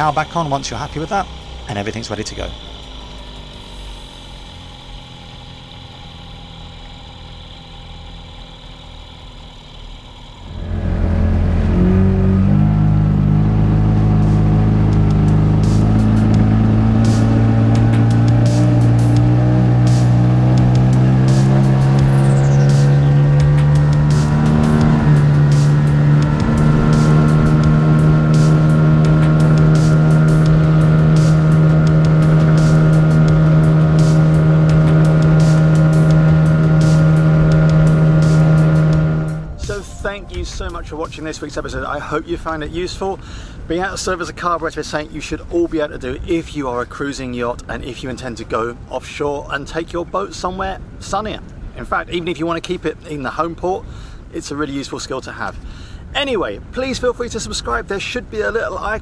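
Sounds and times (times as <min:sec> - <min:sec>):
outboard motor idling: 0:00.0 - 0:44.5
loud deep sound: 0:10.5 - 0:41.2.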